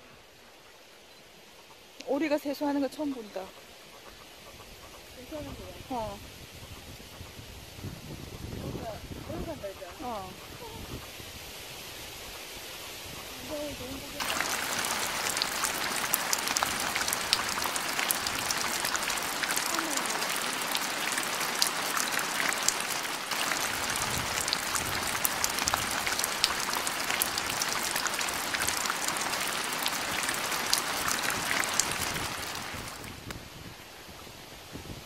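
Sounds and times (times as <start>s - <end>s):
rushing water: 13.0s - 35.0s
water drips and splashes: 13.5s - 33.5s.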